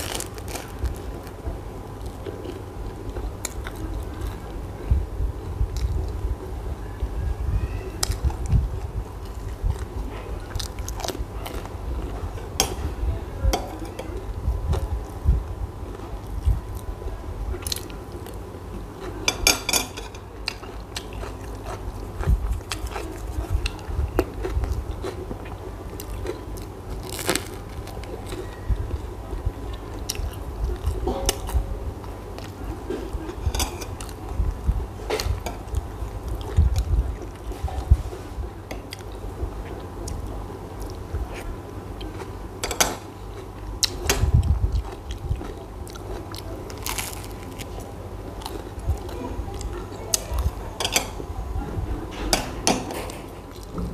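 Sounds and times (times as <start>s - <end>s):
person chewing bread: 0.0s - 4.5s, 8.0s - 12.5s, 17.6s - 19.4s, 20.2s - 38.2s, 38.8s - 50.6s.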